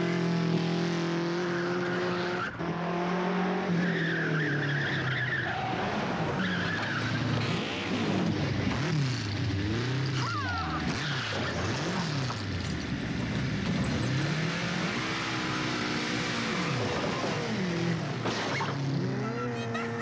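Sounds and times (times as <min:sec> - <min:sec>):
motorcycle engine revving hard: 0:13.2 - 0:20.0.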